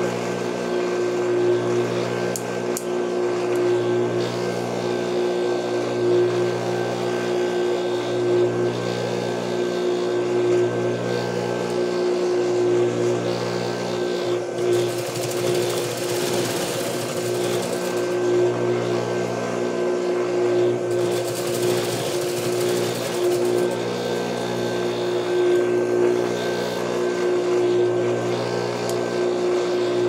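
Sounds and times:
sewing machine motor humming: 0:13.3 - 0:19.3, 0:20.7 - 0:27.6
sewing machine stitching fabric: 0:14.6 - 0:18.3, 0:20.9 - 0:24.0.

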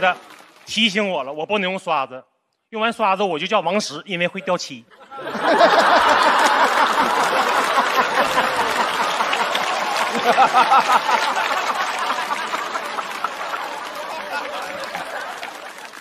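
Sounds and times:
scattered clapping: 0:00.0 - 0:01.3, 0:05.6 - 0:16.0
audience laughing loudly: 0:04.9 - 0:16.0.

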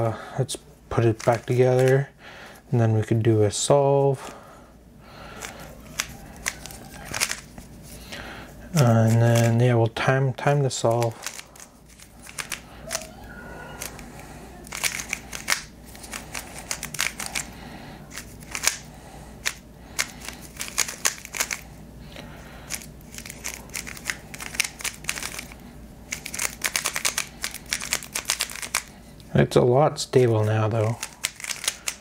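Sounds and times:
plastic puzzle cube clicking: 0:11.2 - 0:13.0, 0:14.6 - 0:17.5, 0:18.1 - 0:18.8, 0:19.4 - 0:21.6, 0:22.7 - 0:28.9, 0:31.0 - 0:32.0.

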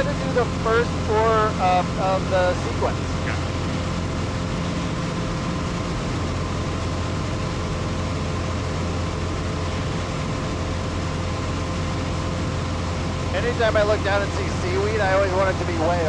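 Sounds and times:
aircraft engine and propeller droning: 0:00.0 - 0:16.0
faint high whine: 0:00.0 - 0:16.0.

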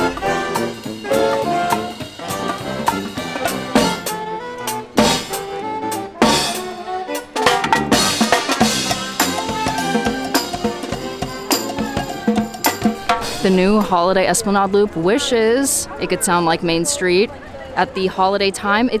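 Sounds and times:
drum and cymbal hits: 0:00.0 - 0:04.2, 0:05.0 - 0:05.5, 0:06.2 - 0:06.7, 0:07.4 - 0:13.6
marching band playing: 0:00.0 - 0:13.9.

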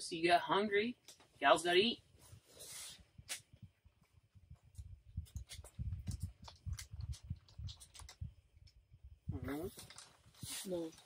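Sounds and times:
snack wrapper clicks and crackles: 0:04.8 - 0:08.8.

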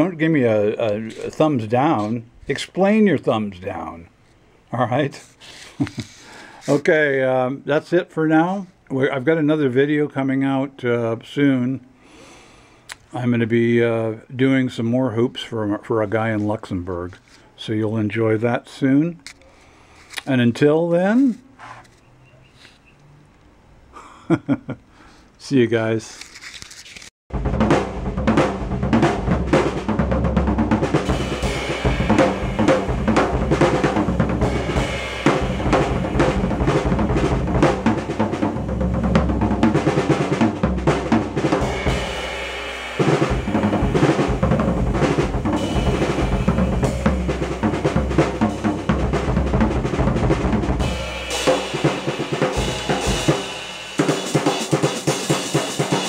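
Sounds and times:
drum kit playing: 0:27.3 - 0:56.0
cymbals ringing: 0:31.0 - 0:38.3, 0:40.9 - 0:49.4, 0:50.8 - 0:56.0.

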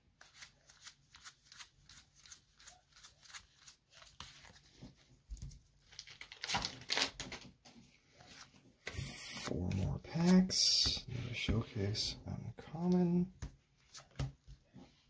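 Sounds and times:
foil wrapper crinkling and tearing: 0:05.8 - 0:07.4.

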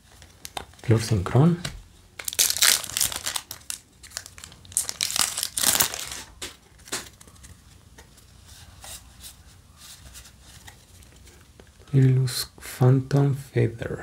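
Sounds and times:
plastic wrapper crinkling: 0:02.2 - 0:07.5.

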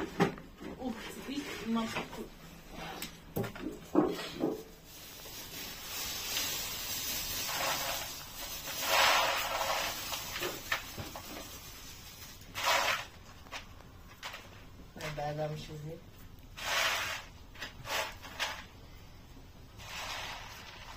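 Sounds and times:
plastic bag crinkling: 0:04.6 - 0:14.6
dried legumes poured into bowl: 0:05.1 - 0:13.1.

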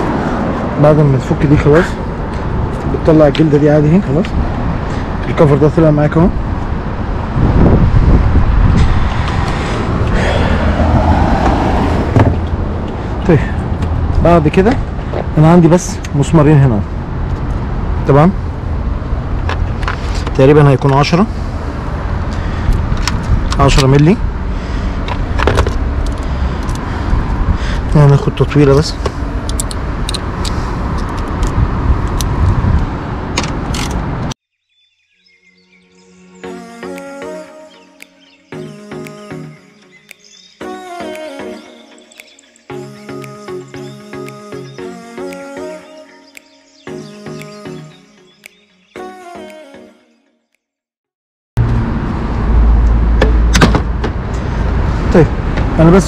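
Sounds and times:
low motor vehicle rumble: 0:00.0 - 0:34.3, 0:51.6 - 0:56.0
metal clicks of sockets: 0:29.4 - 0:32.3.

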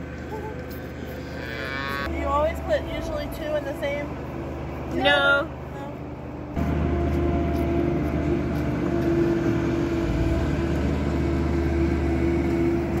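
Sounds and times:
machine motor drone: 0:06.6 - 0:13.0.

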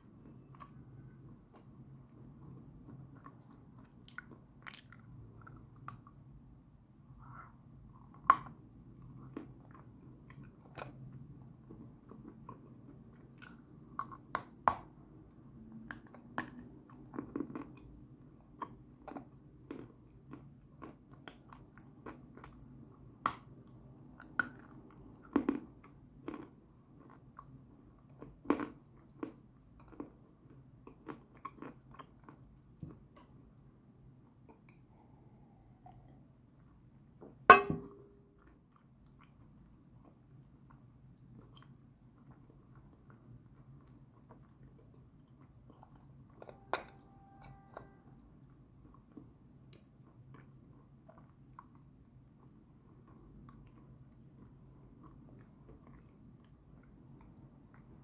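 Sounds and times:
crunchy chewing of chalk: 0:00.0 - 0:06.2, 0:15.8 - 0:33.5, 0:38.3 - 0:46.5, 0:48.4 - 0:58.0
faint low hum: 0:00.0 - 0:58.0.

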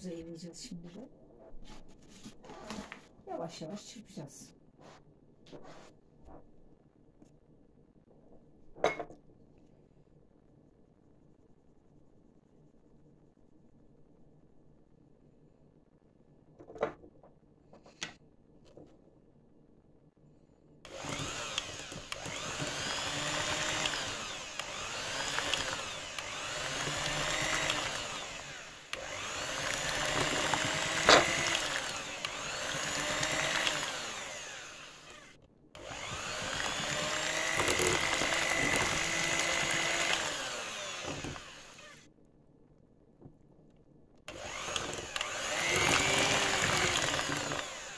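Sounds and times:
electric hand mixer running: 0:20.9 - 0:42.0, 0:44.3 - 0:47.9.

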